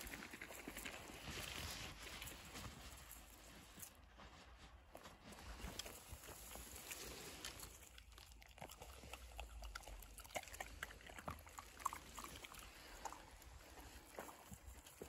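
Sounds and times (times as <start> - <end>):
leaves and twigs crackling: 0.0 - 8.0
footsteps on forest trail: 0.3 - 7.8, 12.5 - 15.0.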